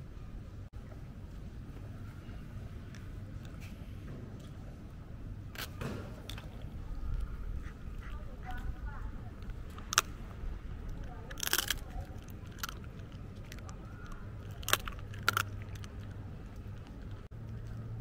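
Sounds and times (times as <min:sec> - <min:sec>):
low rumble: 0:06.3 - 0:18.0
dog chewing with crunches: 0:08.0 - 0:18.0.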